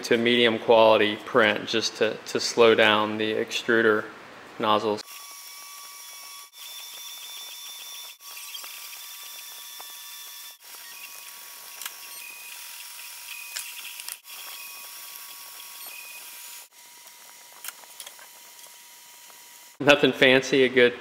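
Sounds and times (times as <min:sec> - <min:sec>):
stepper motors whining: 0:05.0 - 0:19.8.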